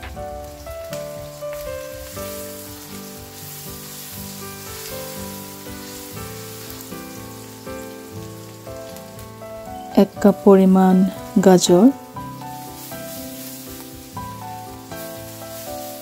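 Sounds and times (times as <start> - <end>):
wooden spatula scraping a wok: 0.0 - 9.2, 12.2 - 16.0
background music: 0.0 - 16.0
onions sizzling in hot oil: 0.0 - 16.0.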